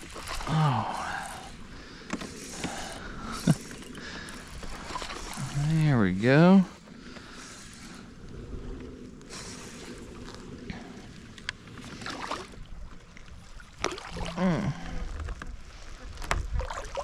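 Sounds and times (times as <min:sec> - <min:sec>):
water moving around kayak: 0:00.0 - 0:17.0
person humming: 0:14.3 - 0:15.0.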